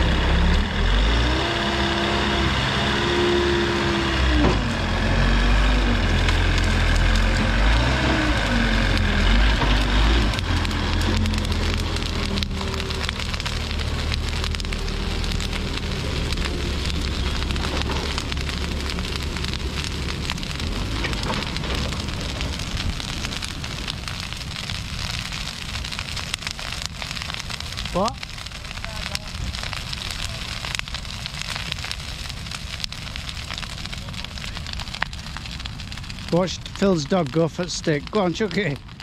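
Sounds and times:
diesel engine humming: 0.0 - 26.4
bonfire crackling and popping: 0.0 - 39.0.

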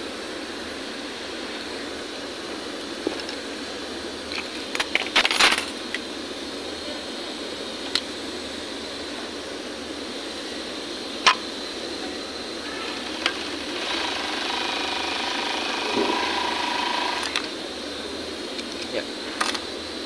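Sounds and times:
overlock machine motor whining: 12.7 - 17.6
sharp clicks: 17.0 - 17.6.

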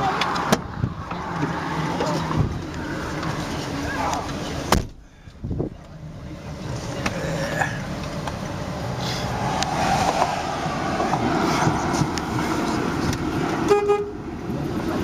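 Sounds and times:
vehicle door slamming: 4.6 - 5.7
thump: 4.7 - 5.0
wind noise: 5.4 - 5.8.

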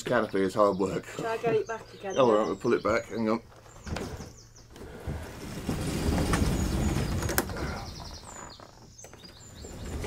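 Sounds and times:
birds chirping faintly: 0.0 - 10.0
sliding boat canopy scraping: 3.7 - 10.0.

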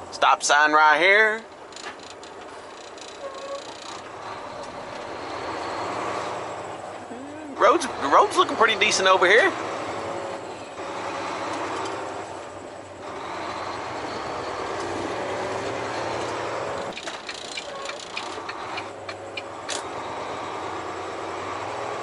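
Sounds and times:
truck diesel engine humming: 0.0 - 22.0
short clicks and rattles: 1.5 - 4.0, 16.9 - 19.9.

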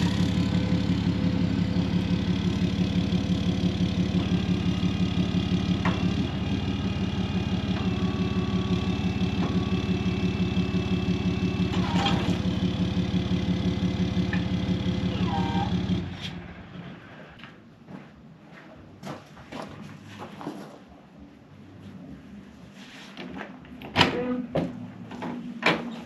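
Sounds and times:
truck engine idling: 0.0 - 17.2.

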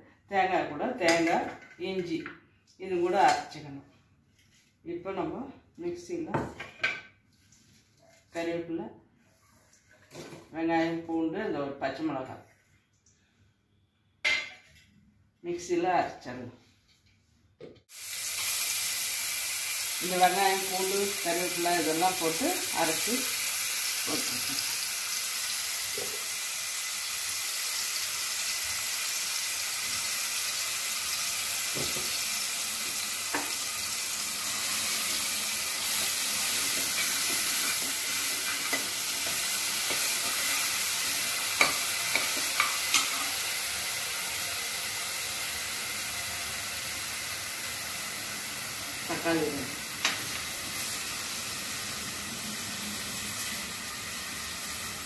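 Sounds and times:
paste sizzling in hot oil: 17.9 - 55.0.

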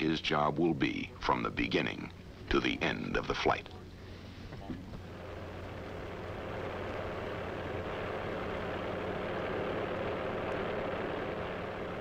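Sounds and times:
tow tractor engine running: 4.8 - 12.0.

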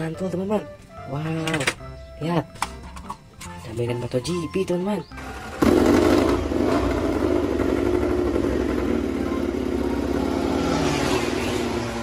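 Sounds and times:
race motorcycle engine running: 5.2 - 12.0.

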